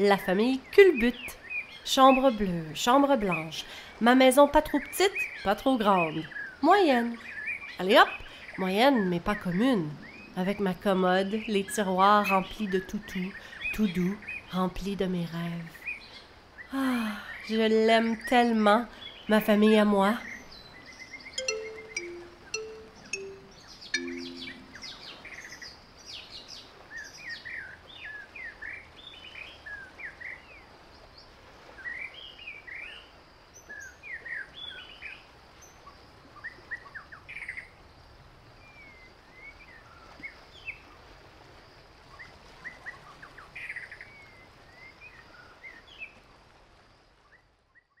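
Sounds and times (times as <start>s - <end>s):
birds chirping: 20.1s - 25.2s.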